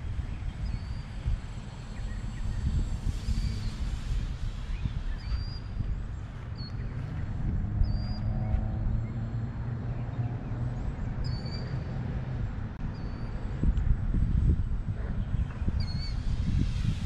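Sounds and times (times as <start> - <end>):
wind buffeting microphone: 0.0 - 17.0
bird chirping: 0.2 - 3.8, 4.7 - 9.3, 9.9 - 11.9.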